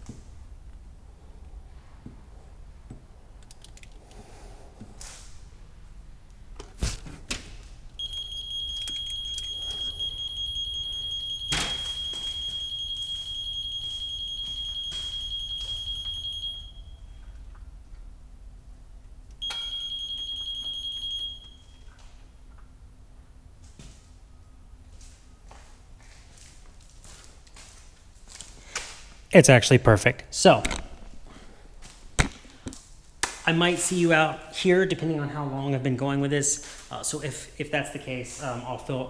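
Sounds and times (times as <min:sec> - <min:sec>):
high-pitched buzz box tone: 0:08.0 - 0:17.2.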